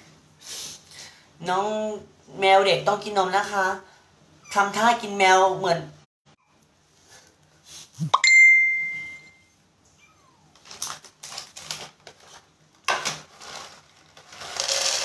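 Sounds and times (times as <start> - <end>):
bright chime ringing: 8.2 - 9.5
plastic bag crinkling: 10.6 - 15.0
dry kibble pouring into plastic bowl: 13.0 - 15.0.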